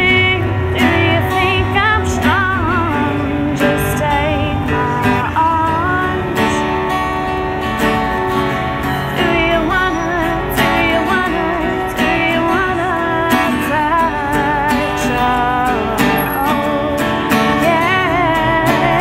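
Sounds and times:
woman singing: 0:00.0 - 0:07.3, 0:09.0 - 0:19.0
strummed acoustic guitar: 0:00.0 - 0:19.0.

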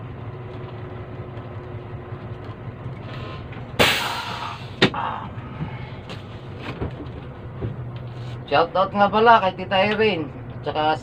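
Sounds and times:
bus engine idling: 0:00.0 - 0:11.0
sudden loud burst of noise: 0:03.8 - 0:04.8.

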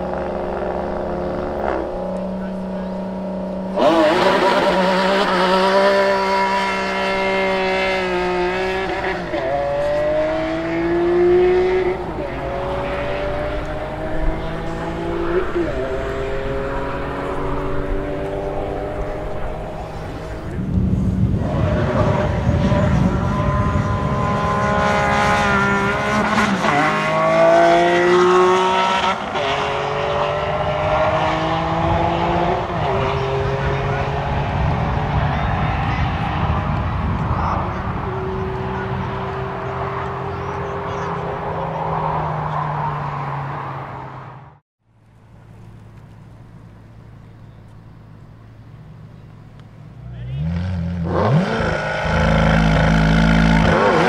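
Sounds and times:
sports car engine accelerating: 0:00.0 - 0:54.0.

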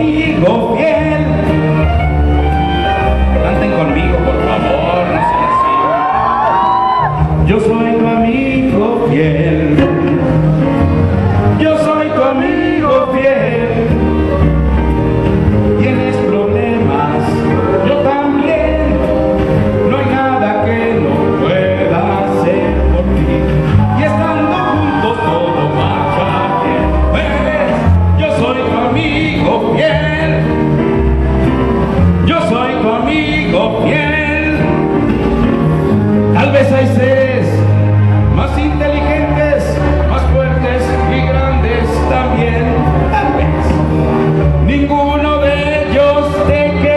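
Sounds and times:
man singing into microphone: 0:00.0 - 0:02.0, 0:03.3 - 0:14.6, 0:15.6 - 0:30.6, 0:32.2 - 0:35.0, 0:36.3 - 0:46.9
backing track with bass line: 0:00.0 - 0:46.9.

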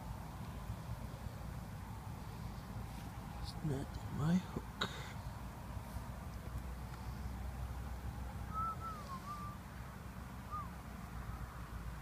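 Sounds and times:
faint whistled notes: 0:08.5 - 0:09.6, 0:10.5 - 0:10.8.

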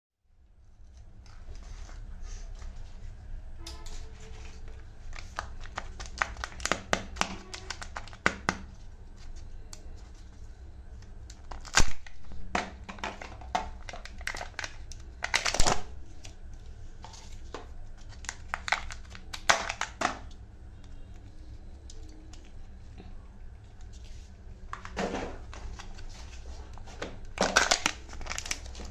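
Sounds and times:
plastic wrapper crackling: 0:04.2 - 0:10.4, 0:11.2 - 0:22.8, 0:23.7 - 0:28.9.

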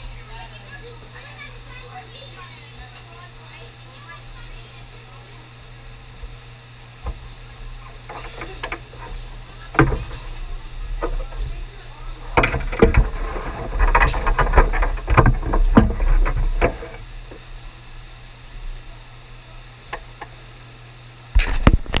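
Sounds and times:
low steady hum: 0:00.0 - 0:22.0
knocks and clatter: 0:12.3 - 0:17.0.

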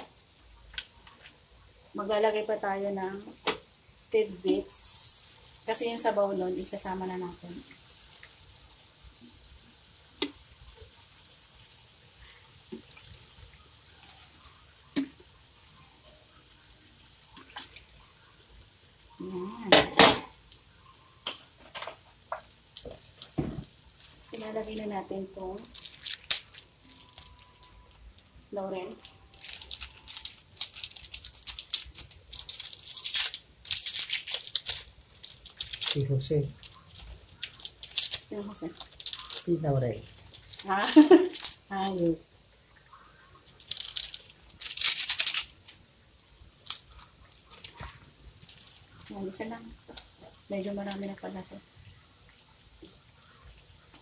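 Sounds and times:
faint liquid sounds: 0:00.0 - 0:54.0
dry leaves crumpling: 0:25.6 - 0:27.7, 0:28.9 - 0:41.7, 0:43.5 - 0:45.7.

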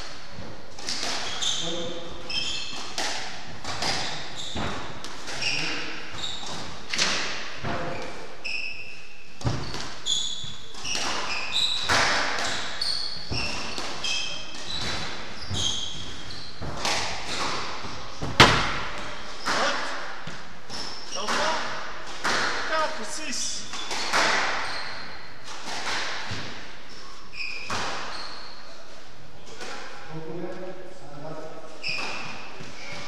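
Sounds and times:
shoes squeaking on wooden floor: 0:00.4 - 0:03.0, 0:03.7 - 0:07.0, 0:07.7 - 0:21.6, 0:26.3 - 0:28.9, 0:31.7 - 0:33.0
squash ball cracking off rackets: 0:14.6 - 0:22.7, 0:23.7 - 0:24.7.

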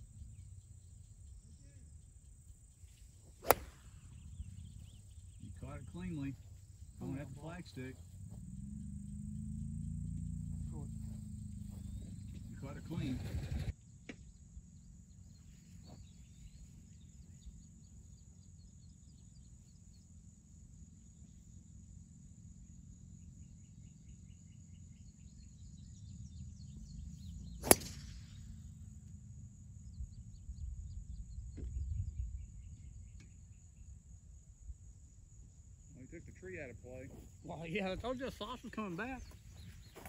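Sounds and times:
golf driver striking ball: 0:03.4 - 0:04.7, 0:27.6 - 0:28.2
wind rumble on microphone: 0:11.2 - 0:13.7, 0:29.6 - 0:35.4.

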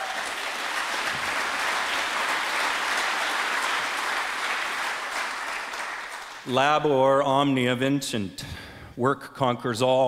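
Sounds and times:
audience applauding: 0:00.0 - 0:06.5.

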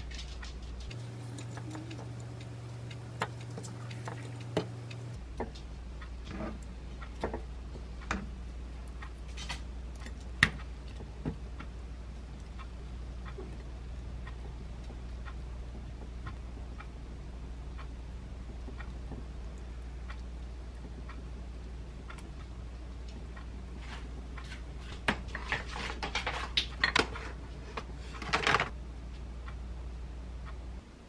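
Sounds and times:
steady low hum: 0:00.8 - 0:25.0.

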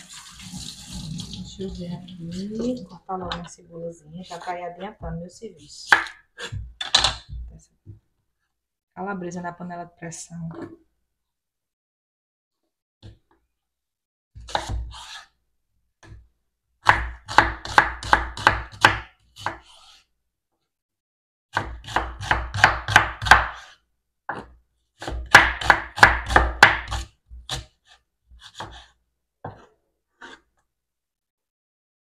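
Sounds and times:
knife chopping on wooden board: 0:05.9 - 0:07.5, 0:14.4 - 0:15.3, 0:16.8 - 0:20.0, 0:21.5 - 0:30.4.

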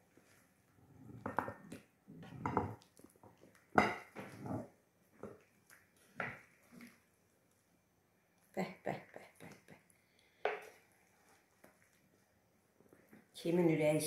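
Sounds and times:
spatula knocking ceramic plate: 0:03.8 - 0:04.2.

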